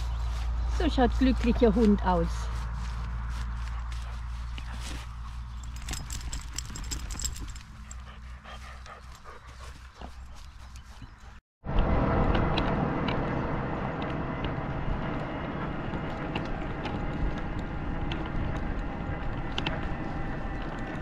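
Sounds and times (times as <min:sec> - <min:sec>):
light rattling clicks: 0:05.6 - 0:08.1.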